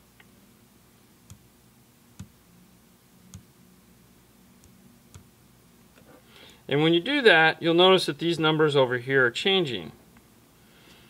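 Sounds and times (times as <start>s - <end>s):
faint steady hum: 0.0s - 11.0s
fingertips tapping touchscreen: 2.2s - 2.4s.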